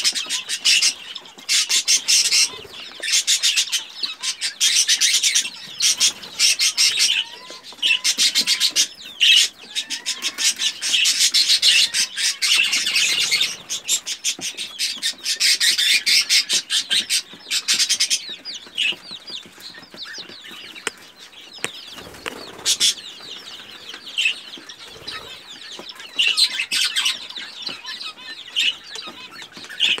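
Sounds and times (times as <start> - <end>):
chicks pecking: 0.0 - 30.0
chicks peeping: 0.0 - 30.0
chicks scratching in feed: 0.0 - 30.0.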